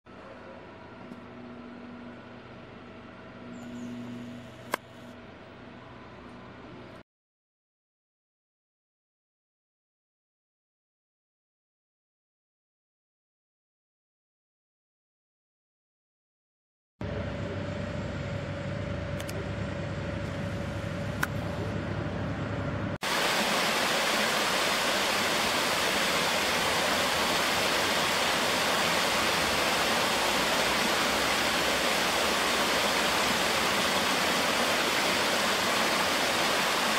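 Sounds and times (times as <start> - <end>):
construction machinery hum: 0.1 - 7.0, 17.0 - 36.9
low engine rumble: 17.0 - 36.9
water rushing over rocks: 23.0 - 36.9.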